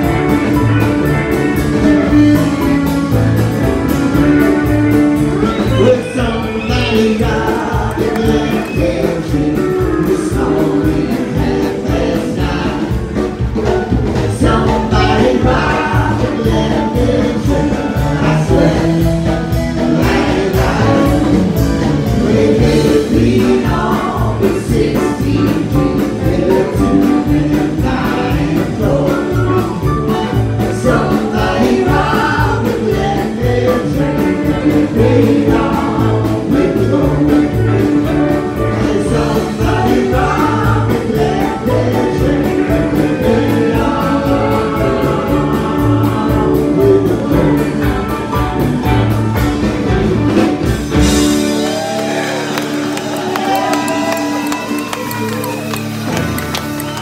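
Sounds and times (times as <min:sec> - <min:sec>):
country rock band playing: 0:00.0 - 0:57.0
man and woman singing: 0:05.4 - 0:48.4.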